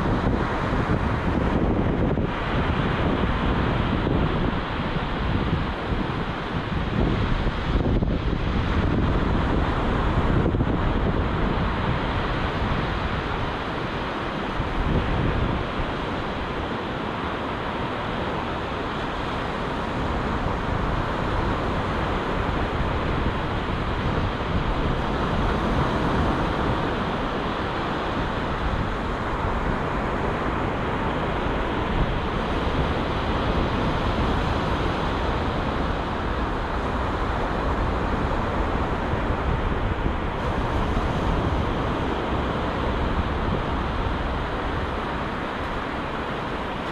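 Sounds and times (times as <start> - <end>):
surf breaking on beach: 0.0 - 46.9
wind buffeting microphone: 0.0 - 46.9.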